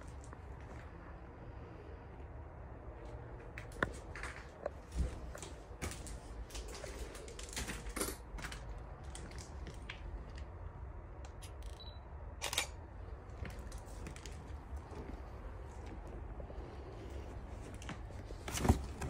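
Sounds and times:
steady low rumble: 0:00.0 - 0:19.0
footsteps crunching on debris: 0:03.6 - 0:10.3.

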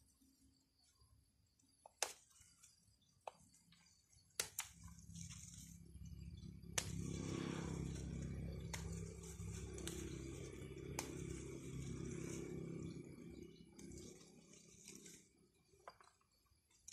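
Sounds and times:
low steady rumble: 0:04.8 - 0:15.2
pruning scissors snipping: 0:06.8 - 0:11.9.

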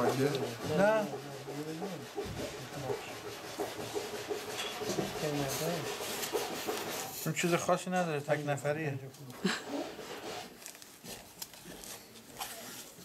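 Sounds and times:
rubbing and scraping on wood: 0:00.0 - 0:08.4, 0:09.4 - 0:13.0.

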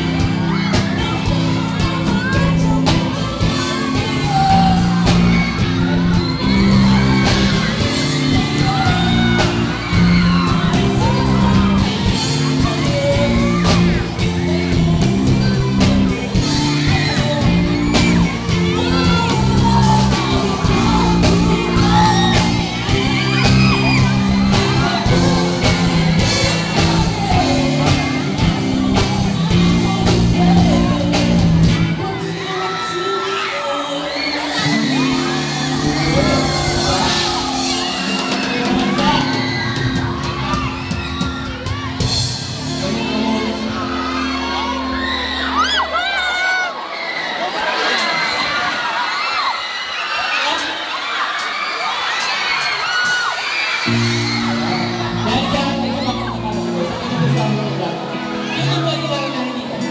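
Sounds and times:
audience whooping and screaming: 0:00.0 - 0:59.9
loud backing music: 0:00.0 - 0:59.9
man singing into microphone: 0:10.5 - 0:39.6, 0:42.7 - 0:44.5.

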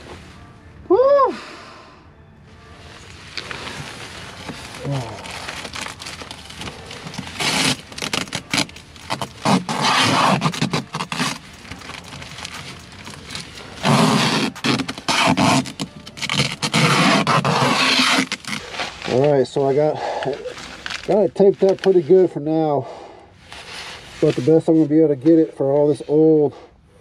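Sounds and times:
foil duct crinkling: 0:03.3 - 0:22.3
tape ripping off roll: 0:03.4 - 0:19.4.

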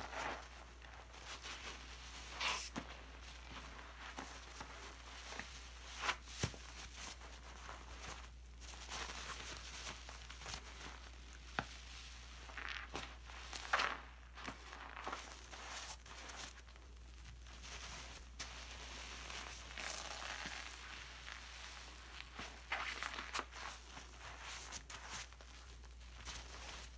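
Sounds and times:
sponge squelching in lather: 0:17.6 - 0:26.9.

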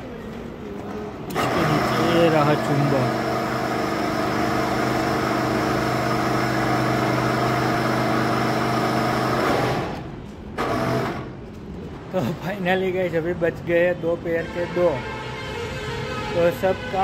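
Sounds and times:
crane engine humming: 0:00.0 - 0:11.5.

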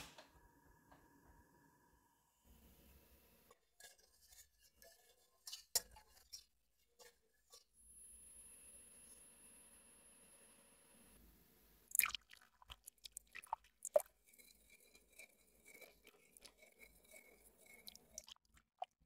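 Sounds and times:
whisk scraping a glass bowl: 0:03.5 - 0:07.7, 0:12.9 - 0:18.4.

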